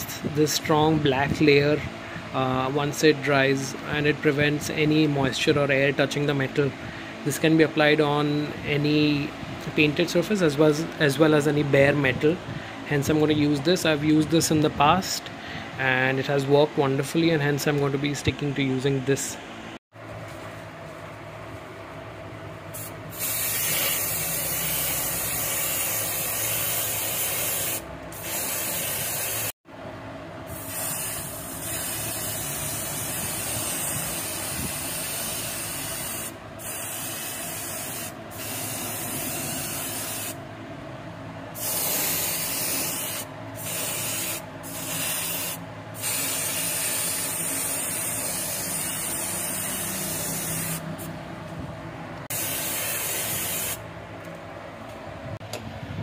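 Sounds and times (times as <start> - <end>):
aerosol can spraying: 22.8 - 29.5, 30.6 - 40.4, 41.6 - 50.8, 52.3 - 53.8.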